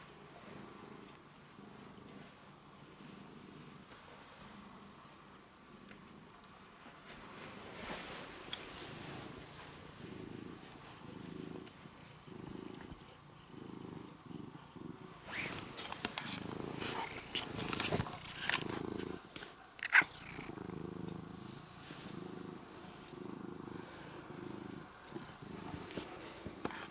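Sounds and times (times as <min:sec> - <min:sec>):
cat purring: 0:00.0 - 0:26.9
rustling: 0:06.8 - 0:11.8, 0:15.2 - 0:20.5.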